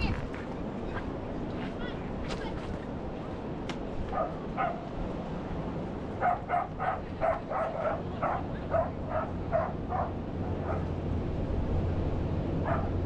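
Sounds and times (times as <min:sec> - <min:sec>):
ocean surf: 0:00.0 - 0:13.0
dog barking: 0:04.1 - 0:04.8, 0:06.2 - 0:10.9, 0:12.6 - 0:13.0.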